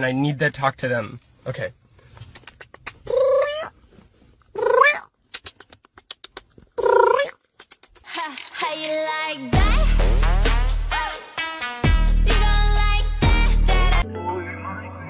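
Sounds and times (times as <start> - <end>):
cat meowing: 3.1 - 3.7
music: 8.1 - 15.0.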